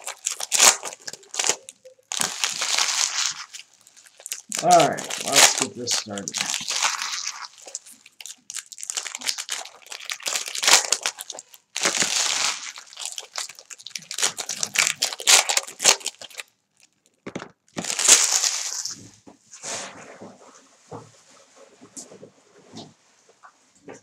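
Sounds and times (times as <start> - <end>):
foil wrappers crinkling and tearing: 0.0 - 19.0.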